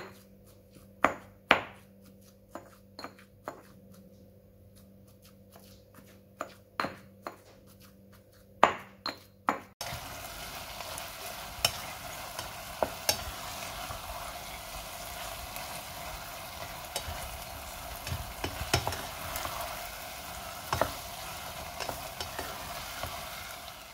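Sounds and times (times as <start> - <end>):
pestle grinding in stone mortar: 0.0 - 9.8, 15.6 - 23.3
food sizzling in a pan: 9.8 - 23.9
utensil clinking in a pan: 11.3 - 23.3.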